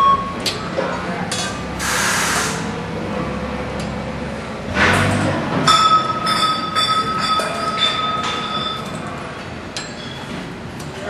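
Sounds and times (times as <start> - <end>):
gas hiss: 1.8 - 2.7
steady high ringing tone: 5.7 - 9.1
metallic clinks: 5.7 - 9.2.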